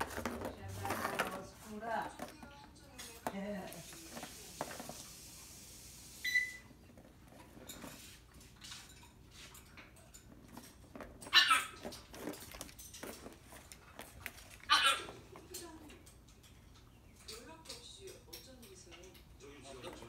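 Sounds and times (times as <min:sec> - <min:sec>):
ball rolling around plastic ring: 0:00.0 - 0:02.4, 0:03.0 - 0:05.4, 0:10.2 - 0:15.5.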